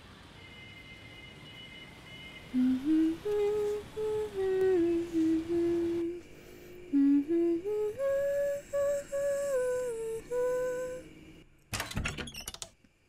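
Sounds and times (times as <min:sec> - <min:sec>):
person humming a slow tune: 0:02.5 - 0:11.2.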